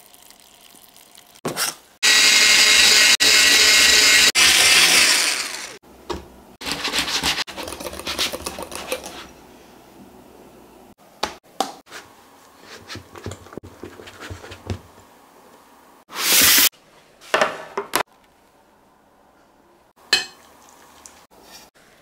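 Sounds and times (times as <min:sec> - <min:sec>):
whisk scraping in glass bowl: 0:06.6 - 0:09.3.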